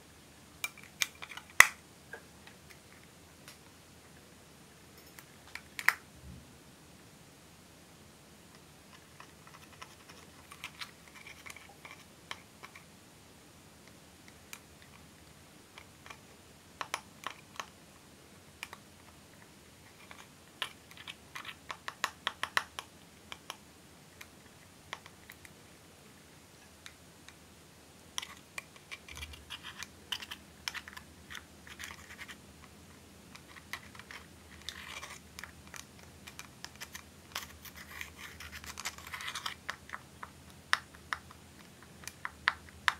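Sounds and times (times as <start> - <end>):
scissors scraping pressed powder: 28.2 - 32.4, 33.3 - 39.9.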